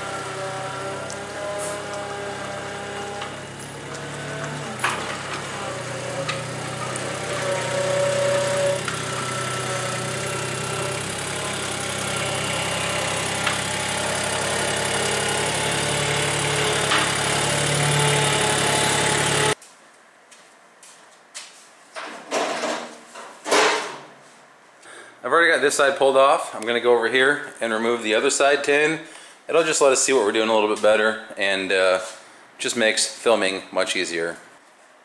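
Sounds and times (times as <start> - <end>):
skid steer engine running: 0.0 - 19.6.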